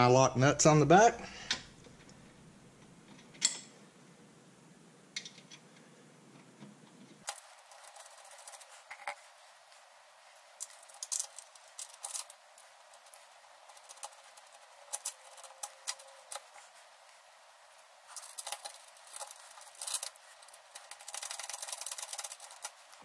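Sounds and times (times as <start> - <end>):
metallic clicks of bolts and nuts: 3.1 - 3.8, 5.2 - 5.6.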